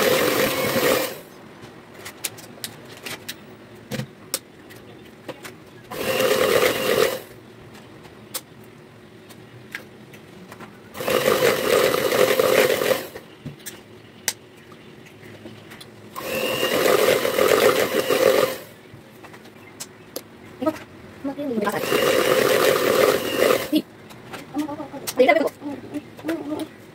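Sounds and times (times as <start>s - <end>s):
electric hand mixer beating: 0.0s - 1.3s, 5.9s - 7.3s, 11.0s - 13.2s, 16.2s - 18.7s, 21.6s - 23.8s.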